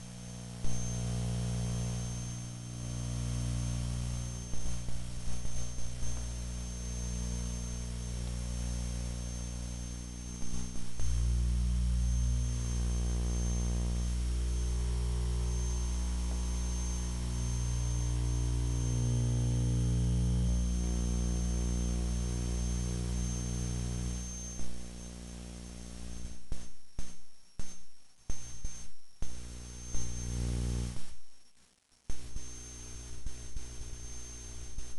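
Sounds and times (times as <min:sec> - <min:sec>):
low electronic buzzing drone: 0:00.0 - 0:26.3, 0:29.4 - 0:31.0.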